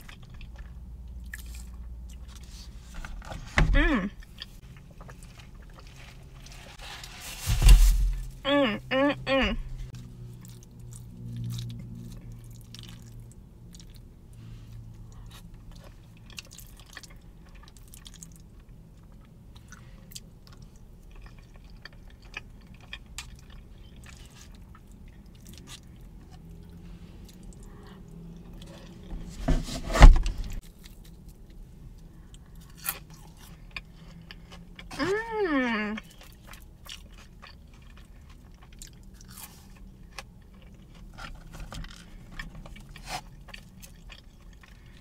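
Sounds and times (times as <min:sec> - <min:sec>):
person chewing: 0:00.0 - 0:02.8, 0:14.8 - 0:29.1, 0:36.0 - 0:45.0
bump: 0:06.8 - 0:09.9.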